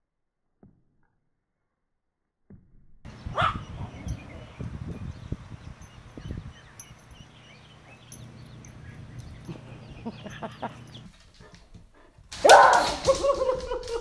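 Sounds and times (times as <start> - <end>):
chick peeping: 3.1 - 11.1.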